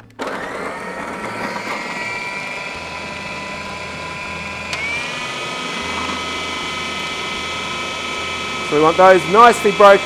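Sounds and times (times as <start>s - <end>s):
food processor motor whining: 0.0s - 10.0s
food processor switch click: 4.7s - 5.0s.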